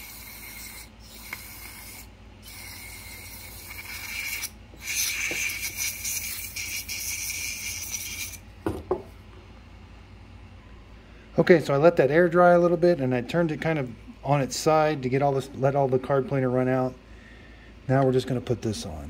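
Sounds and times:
aerosol spray hissing: 0.0s - 8.4s.

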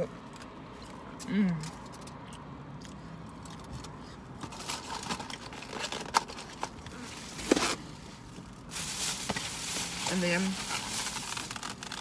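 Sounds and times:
foil wrapper crinkling: 8.4s - 12.0s
wrapper crackles: 8.5s - 12.0s.

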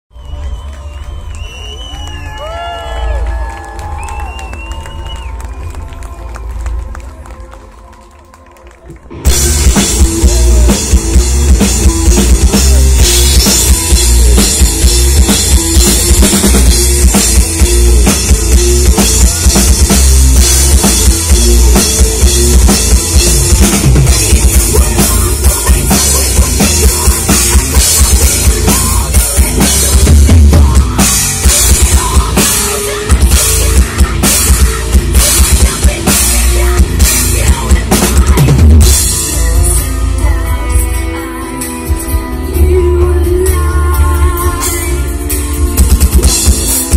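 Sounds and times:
bass guitar: 0.2s - 46.9s
electric guitar: 2.2s - 46.9s
drum kit with cymbals: 9.2s - 40.9s, 41.6s - 46.9s.

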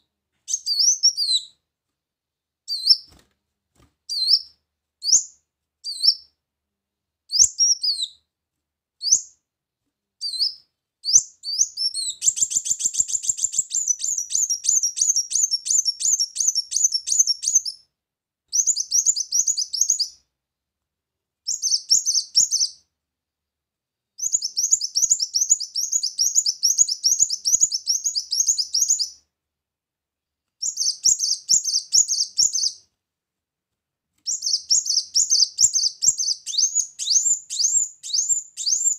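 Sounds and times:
bird chirping and twittering: 0.5s - 1.5s, 10.2s - 17.8s, 18.6s - 20.2s, 21.5s - 22.8s, 24.2s - 29.2s, 30.6s - 32.8s, 34.3s - 38.9s.

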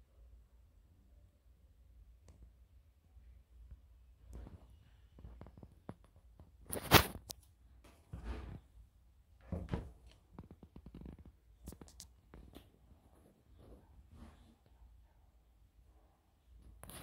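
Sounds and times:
rustling scrapes: 7.9s - 8.8s.

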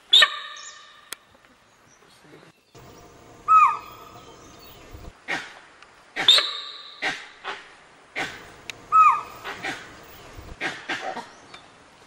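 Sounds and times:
animal alarm barks: 2.8s - 5.5s, 8.2s - 11.3s.

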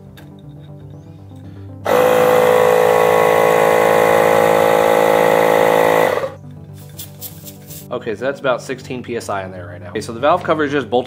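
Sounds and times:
air compressor running: 1.8s - 6.4s.

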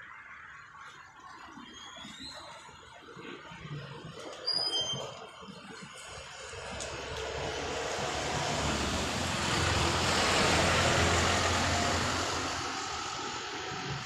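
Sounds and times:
vehicle passing by: 6.5s - 14.0s.

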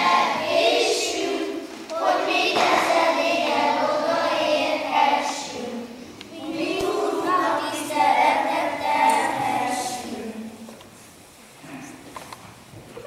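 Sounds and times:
children's choir singing: 0.0s - 10.8s.

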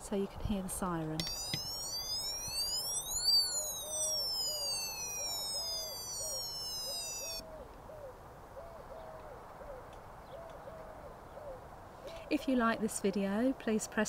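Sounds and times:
toy siren wailing: 1.2s - 7.4s.

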